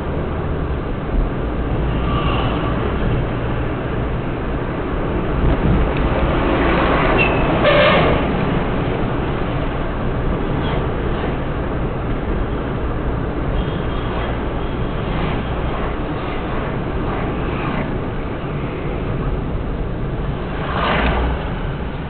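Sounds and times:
vehicle engine and road noise: 0:00.0 - 0:22.0
short horn: 0:07.2 - 0:08.2.

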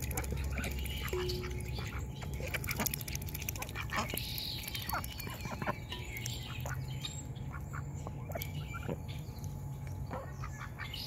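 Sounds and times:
ducks quacking: 0:00.0 - 0:05.8, 0:10.1 - 0:11.0
low steady hum: 0:00.0 - 0:11.0.

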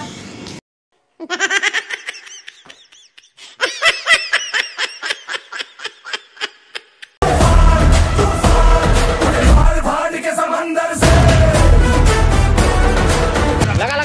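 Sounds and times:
person laughing: 0:01.2 - 0:07.2.

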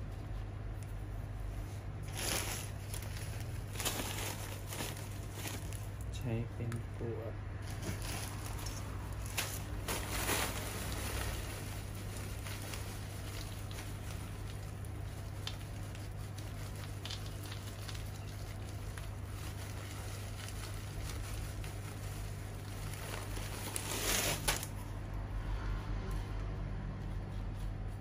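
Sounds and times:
stones pattering into plant pot: 0:12.4 - 0:21.6.

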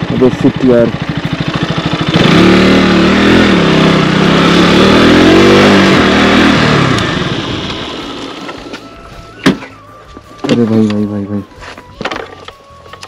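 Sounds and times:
motorcycle engine revving: 0:00.0 - 0:09.8.

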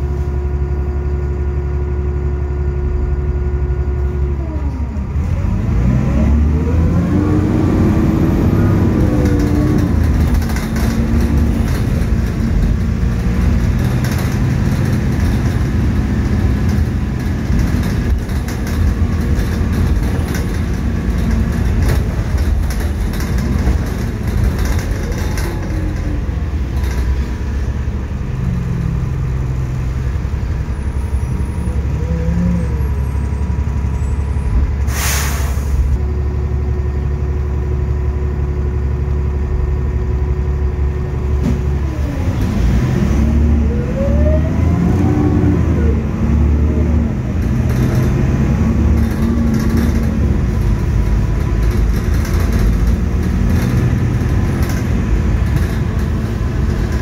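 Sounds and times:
bus diesel engine droning: 0:00.0 - 0:57.0.

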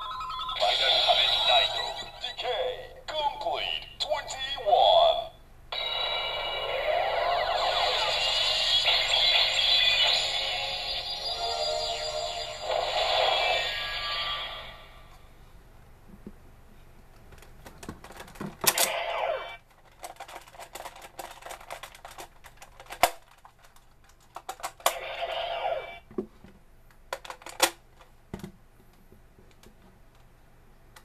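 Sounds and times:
plastic toy parts clicking: 0:19.7 - 0:24.9, 0:27.1 - 0:27.8.

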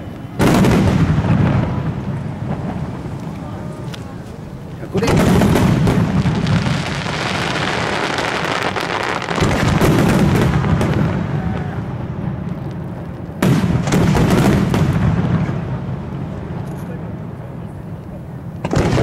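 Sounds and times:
firework shells bursting: 0:00.1 - 0:11.3.

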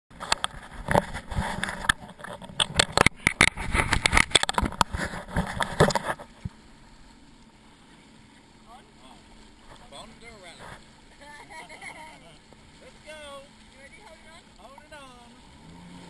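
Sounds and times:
knocks and scrapes on camera: 0:00.2 - 0:06.5.

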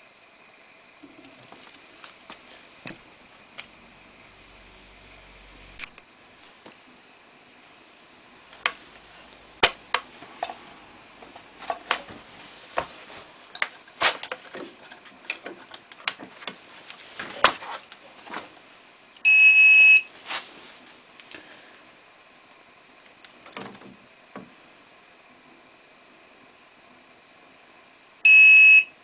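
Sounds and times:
scale high beep: 0:28.3 - 0:28.9.

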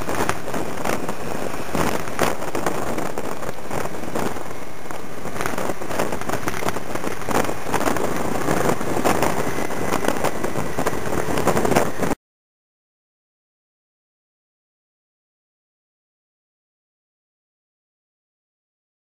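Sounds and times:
motor scooter engine: 0:00.0 - 0:12.2
wind buffeting microphone: 0:00.0 - 0:12.2.

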